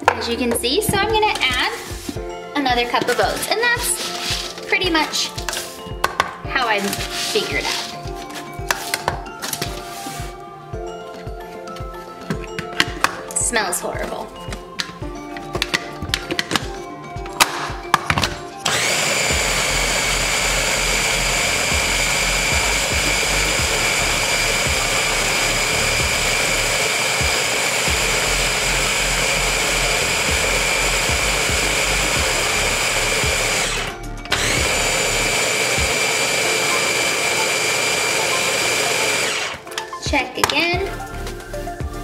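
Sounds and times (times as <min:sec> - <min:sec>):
blender motor whine: 0:18.6 - 0:39.7.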